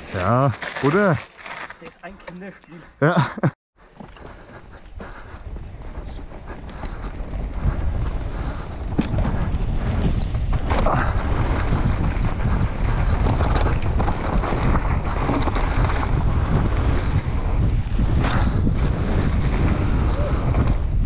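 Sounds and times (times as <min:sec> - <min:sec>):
tyres rolling over dirt: 0:00.0 - 0:02.4, 0:05.4 - 0:20.9
wind buffeting microphone: 0:04.0 - 0:21.0
bike clattering over bumps: 0:05.0 - 0:21.0.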